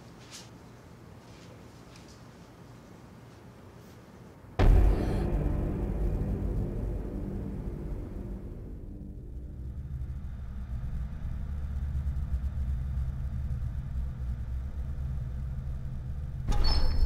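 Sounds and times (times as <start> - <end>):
loud hit with ringing tone: 4.6 - 10.8
low rumbling drone: 4.6 - 17.0.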